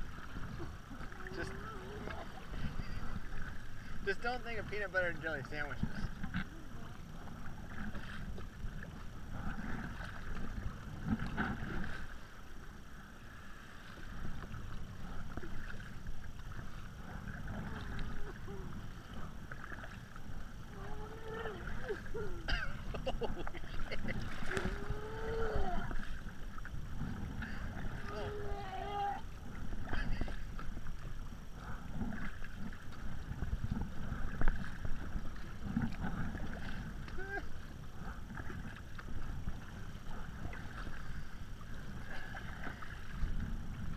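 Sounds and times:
paddle blades dipping in water: 0.0s - 43.9s
water splashing and sloshing: 0.0s - 43.9s
wind rumble on microphone: 0.0s - 43.9s.

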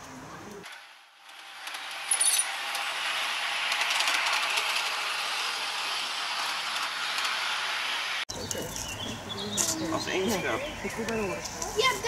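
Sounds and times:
model train wheels rolling on rails: 0.6s - 8.2s.

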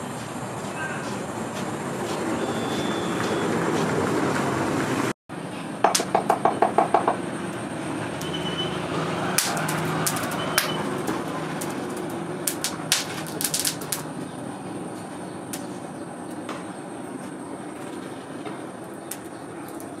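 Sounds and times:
rapid sharp knocks: 5.8s - 7.2s.

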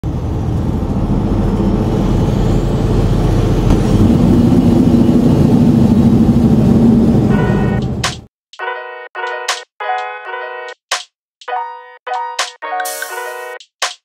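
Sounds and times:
road noise: 0.0s - 8.3s
truck engine rumble: 0.0s - 8.3s.

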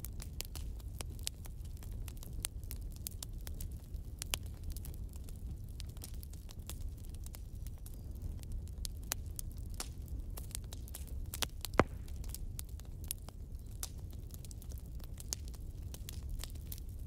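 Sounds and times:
crackling pops and clicks: 10.7s - 12.8s.

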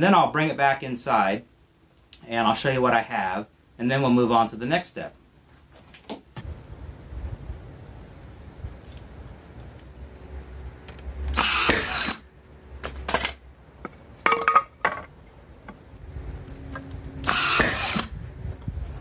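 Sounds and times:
nail gun firing: 11.3s - 12.2s, 17.2s - 18.1s.

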